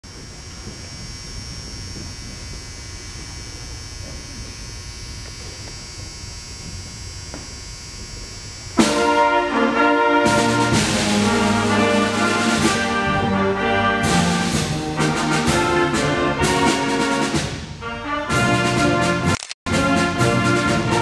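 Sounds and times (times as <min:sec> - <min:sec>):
room noise of people in a gym: 0:00.0 - 0:08.8
concert band brass chord: 0:08.8 - 0:21.0.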